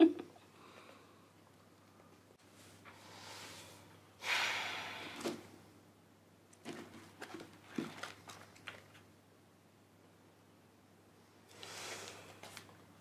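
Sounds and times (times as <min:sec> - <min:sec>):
book pages turning: 0:06.6 - 0:09.0
paper crinkling: 0:06.6 - 0:09.0.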